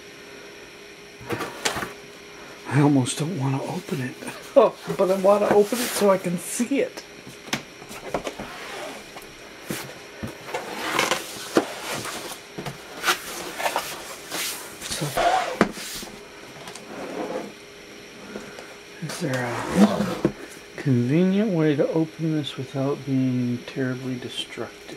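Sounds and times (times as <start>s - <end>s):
cardboard box scraping and knocking: 19.4s - 20.4s.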